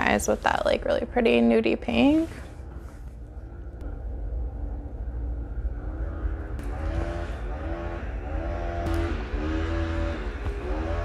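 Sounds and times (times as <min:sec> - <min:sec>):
low rumble: 0:00.0 - 0:11.0
hedge trimmer revving: 0:06.6 - 0:11.0.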